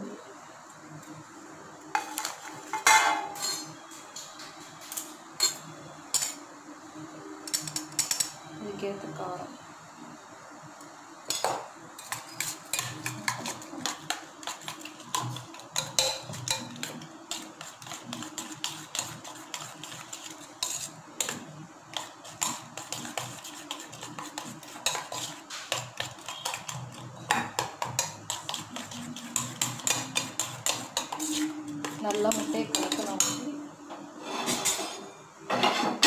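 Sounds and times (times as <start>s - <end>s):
spoon clinking in metal saucepan: 2.8s - 3.8s, 15.8s - 16.9s.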